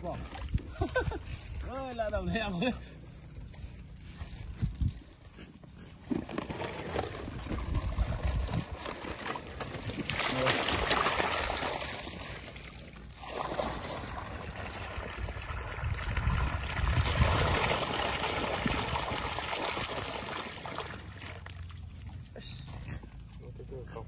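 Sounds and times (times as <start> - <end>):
water gushing and splashing: 6.3 - 22.4.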